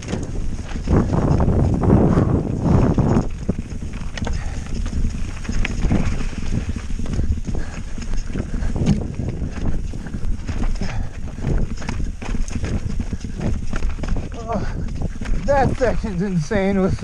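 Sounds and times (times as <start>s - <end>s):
bike knocking and clattering: 0.0s - 17.0s
bike tyres rolling over rock: 0.0s - 17.0s.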